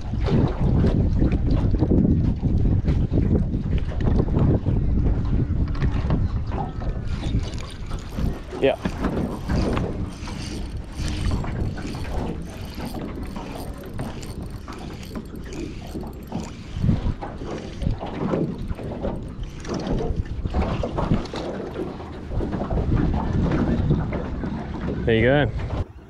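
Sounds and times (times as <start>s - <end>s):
fishing reel clicking: 7.0s - 22.5s.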